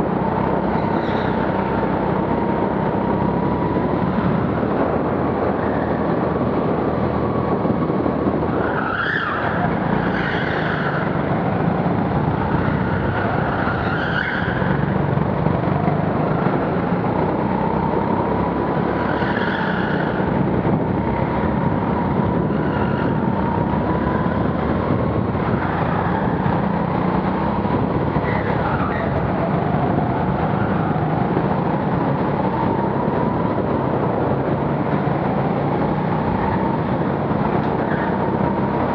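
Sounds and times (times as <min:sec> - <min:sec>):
go-kart engine running hard: 0:00.0 - 0:38.9
tyre squeals: 0:12.7 - 0:14.9.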